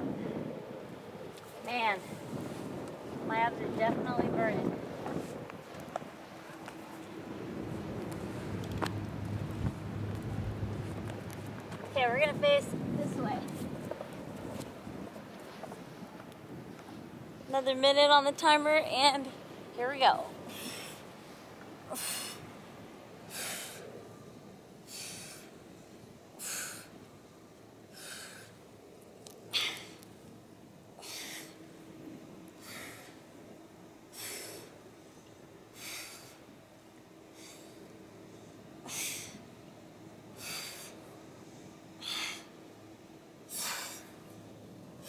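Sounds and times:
woman exhaling forcefully: 0:21.9 - 0:22.4, 0:29.5 - 0:30.0, 0:31.0 - 0:31.6, 0:42.0 - 0:42.5, 0:43.5 - 0:44.1.

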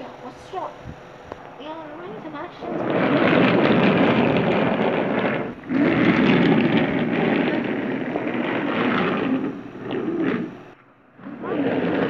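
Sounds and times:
toy train rolling on hard floor: 0:01.6 - 0:12.0.

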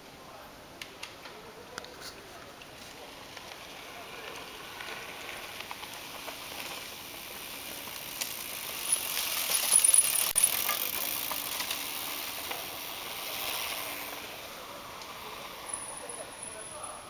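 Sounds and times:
bike tyres crunching leaves: 0:00.8 - 0:17.0
bicycle freewheel ticking: 0:03.8 - 0:17.0.

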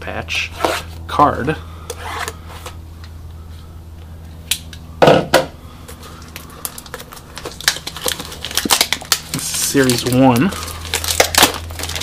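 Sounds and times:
plastic wrap crinkling: 0:06.0 - 0:12.0.

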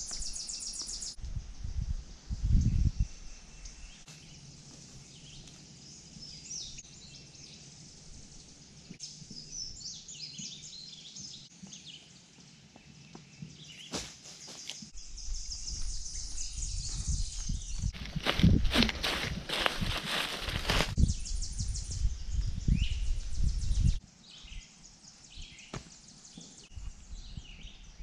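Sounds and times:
small birds chirping: 0:00.0 - 0:18.5, 0:19.5 - 0:28.0
footsteps crunching dry leaves: 0:15.8 - 0:21.0.

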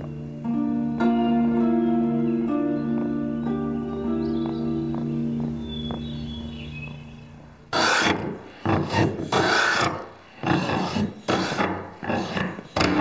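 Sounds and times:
hand plane shaving wood: 0:07.7 - 0:13.0.

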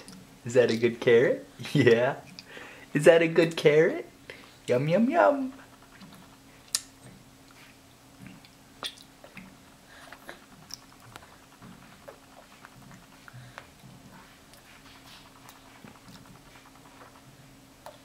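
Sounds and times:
baby chewing wet smacks: 0:05.6 - 0:18.0.

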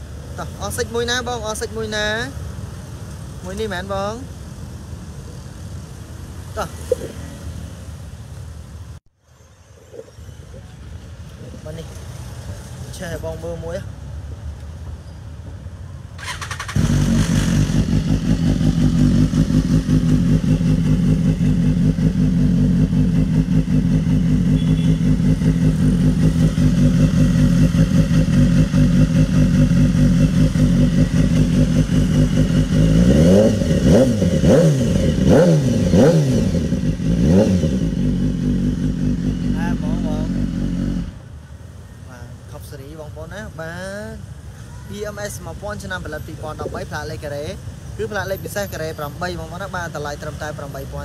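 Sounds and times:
motorcycle engine starter cranking: 0:16.2 - 0:17.9
motorcycle engine idling: 0:16.2 - 0:35.9
motorcycle throttle blips: 0:16.2 - 0:41.1.

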